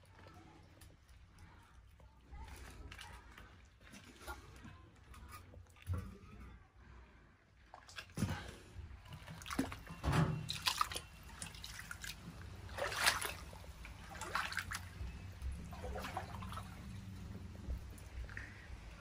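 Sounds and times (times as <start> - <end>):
floodwater splashing and trickling: 0.0 - 6.0, 7.6 - 19.0.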